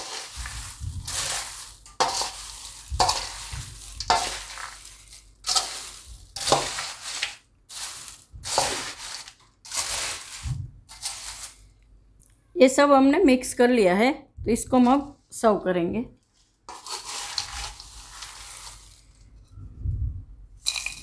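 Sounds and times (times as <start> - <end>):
spoon tossing crunchy flakes in bowl: 0.0 - 11.8, 16.6 - 19.5, 20.6 - 21.0.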